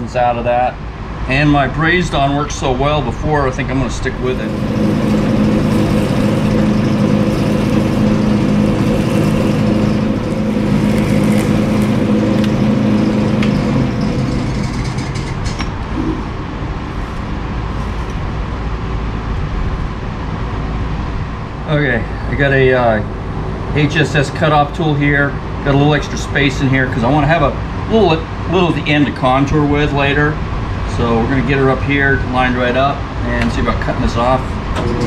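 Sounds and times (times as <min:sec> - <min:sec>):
metal lathe running: 0:03.6 - 0:16.3, 0:34.2 - 0:35.0
spindle winding down: 0:03.6 - 0:16.3.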